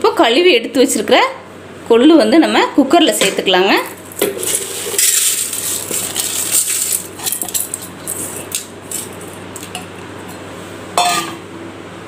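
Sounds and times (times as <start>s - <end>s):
beans rattling into metal pot: 3.9s - 9.7s.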